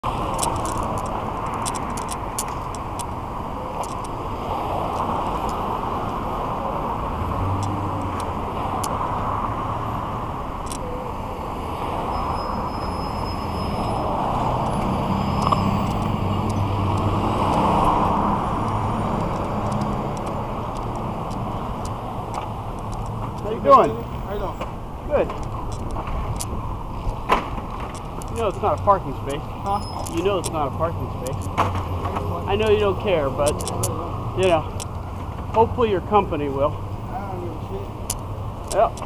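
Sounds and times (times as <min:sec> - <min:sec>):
passing cars rushing: 0:00.0 - 0:39.0
low vehicle engine hum: 0:13.5 - 0:35.6.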